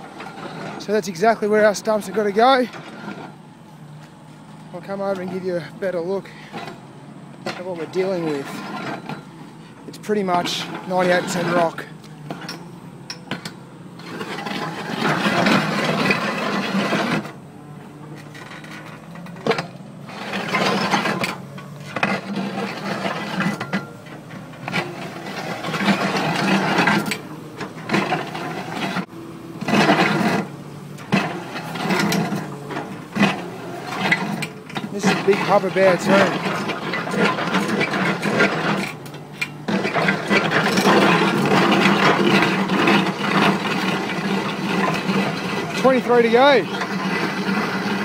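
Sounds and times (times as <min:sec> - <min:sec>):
auger grinding against rock: 0:00.0 - 0:48.0
excavator engine hum: 0:00.0 - 0:48.0.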